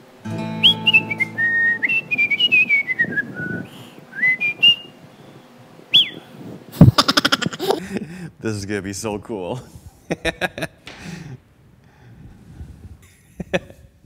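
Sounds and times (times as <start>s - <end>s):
low steady hum: 0.0s - 14.0s
person whistling: 0.6s - 4.9s, 6.0s - 6.2s.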